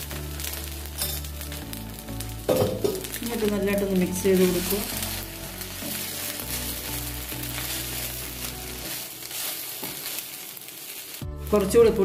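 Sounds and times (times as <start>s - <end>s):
food sizzling in a pan: 0.0s - 12.0s
soft background music: 0.0s - 12.0s
spatula stirring in a pan: 4.2s - 11.3s.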